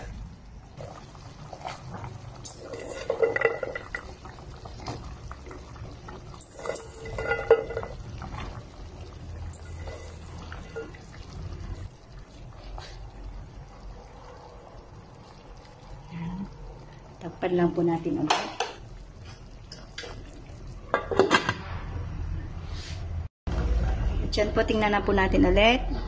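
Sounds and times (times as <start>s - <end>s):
broth boiling in a pot: 0.0s - 22.0s
metallic clinks of pot: 2.4s - 4.4s, 6.3s - 8.2s.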